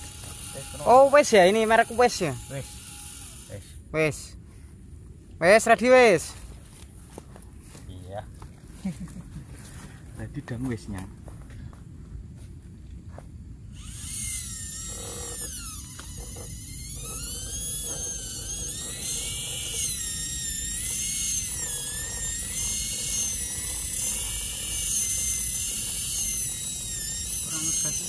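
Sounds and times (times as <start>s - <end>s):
small electric winch motor whining: 0.0s - 3.8s, 13.7s - 28.0s.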